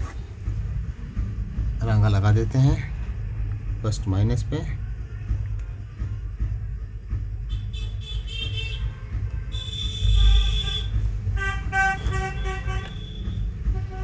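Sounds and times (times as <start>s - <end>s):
traffic rumble: 0.0s - 14.0s
car horns honking: 7.5s - 14.0s.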